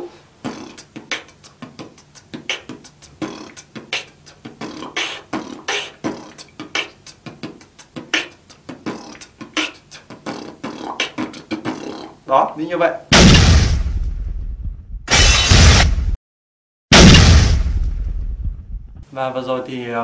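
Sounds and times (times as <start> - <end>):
beatbox drum sounds: 0.0 - 12.2
buzzing lip bass: 16.9 - 19.0.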